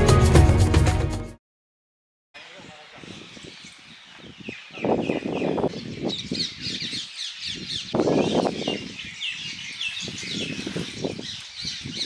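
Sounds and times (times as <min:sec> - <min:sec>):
birds chirping: 0:02.4 - 0:12.0.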